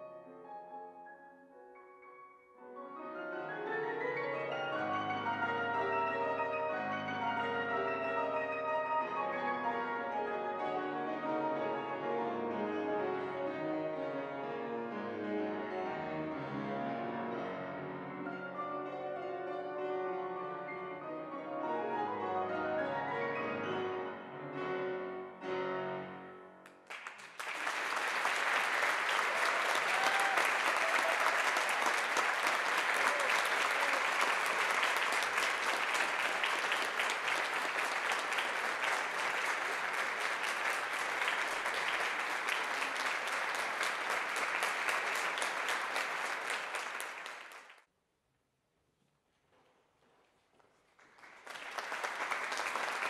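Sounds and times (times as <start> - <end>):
piano piece: 0.0 - 47.6
audience applauding: 26.6 - 47.8, 50.9 - 53.0.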